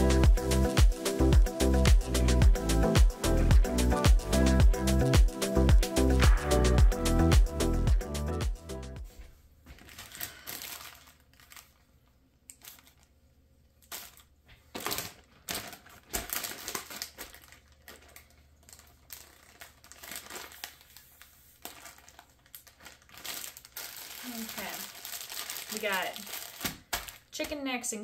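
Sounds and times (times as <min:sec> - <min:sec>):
plastic bags crinkling: 0:09.6 - 0:27.6.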